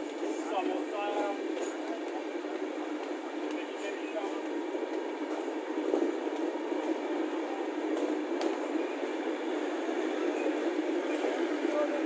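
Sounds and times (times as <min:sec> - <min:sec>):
train rumbling and rattling: 0:00.0 - 0:12.0.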